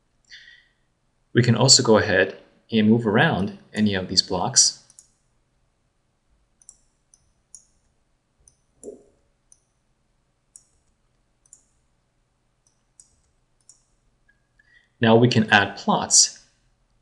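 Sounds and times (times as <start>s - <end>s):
computer mouse clicks: 4.8s - 5.2s, 6.6s - 7.8s, 8.4s - 9.7s, 10.5s - 11.8s, 12.6s - 14.5s.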